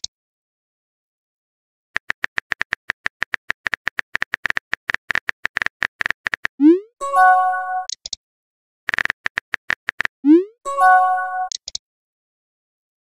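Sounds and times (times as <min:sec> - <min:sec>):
keyboard typing clicks: 0:02.0 - 0:06.7, 0:07.8 - 0:08.2, 0:08.9 - 0:10.1, 0:11.2 - 0:11.8.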